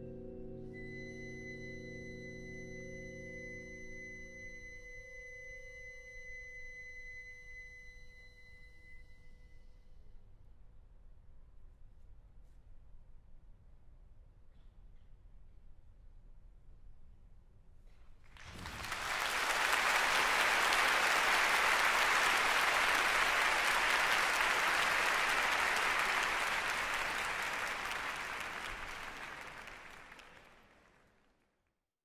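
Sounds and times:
large audience applauding: 0:18.3 - 0:31.3.

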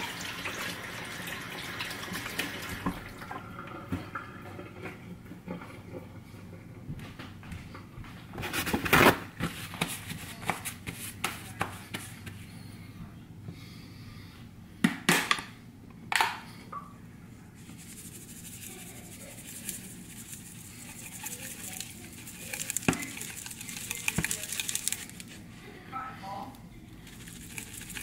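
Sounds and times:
seasoning shaker rattling: 0:17.6 - 0:25.4, 0:27.0 - 0:28.0.

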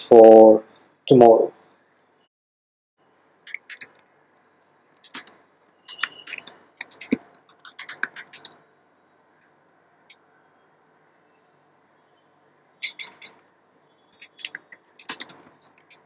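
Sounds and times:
computer keyboard typing: 0:04.9 - 0:08.6, 0:12.8 - 0:13.4, 0:14.1 - 0:16.0.

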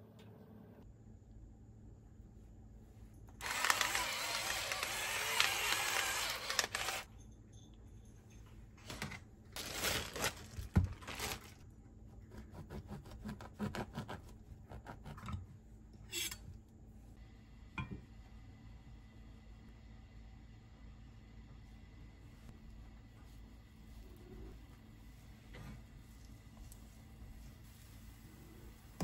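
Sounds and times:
electric salt grinder running: 0:03.4 - 0:07.1.

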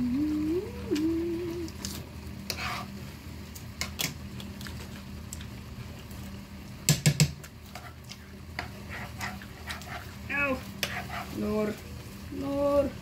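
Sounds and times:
chewing salad: 0:03.6 - 0:06.3.

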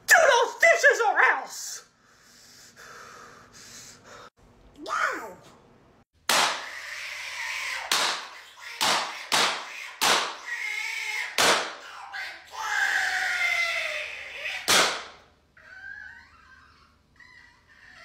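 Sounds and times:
loud sharp bangs: 0:06.3 - 0:06.6, 0:11.4 - 0:11.8, 0:14.7 - 0:15.2
person screaming: 0:06.6 - 0:14.8.

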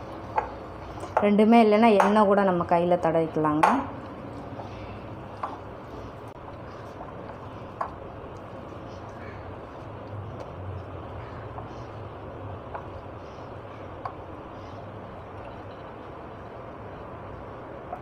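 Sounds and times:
low background hum: 0:00.0 - 0:18.0
hands squishing dough: 0:03.7 - 0:14.9.

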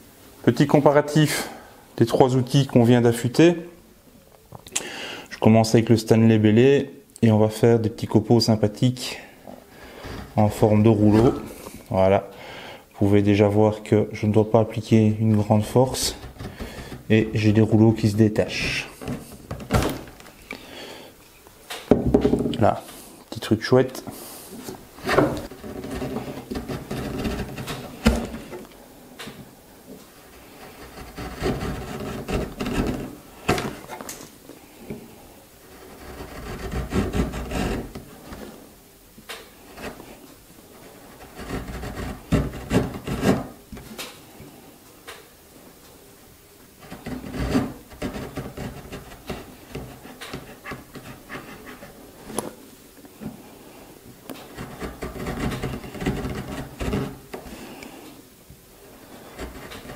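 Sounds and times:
chisel scraping wood: 0:15.9 - 0:17.2, 0:24.6 - 0:28.7, 0:30.2 - 0:34.0, 0:35.7 - 0:38.5, 0:39.7 - 0:40.2, 0:41.0 - 0:43.6, 0:46.8 - 0:52.4, 0:54.4 - 0:57.6, 0:59.0 - 0:59.9.

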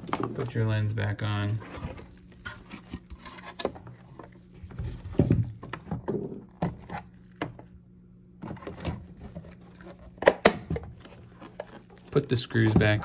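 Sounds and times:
faint steady hum: 0:00.0 - 0:13.0
plastic parts clicking and knocking: 0:08.4 - 0:13.0.

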